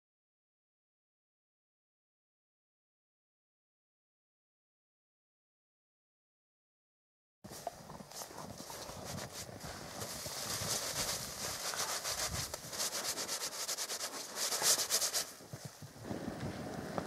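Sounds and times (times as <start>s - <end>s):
brushing snow off snowsuit: 7.6s - 15.8s.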